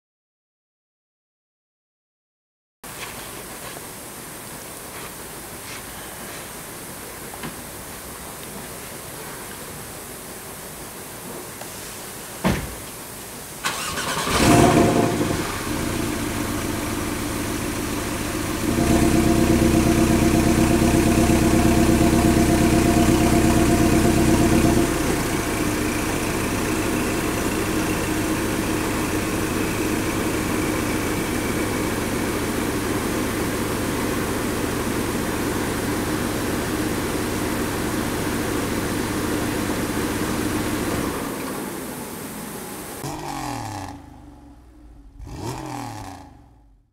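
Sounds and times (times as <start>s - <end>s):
car engine idling: 13.7s - 46.9s.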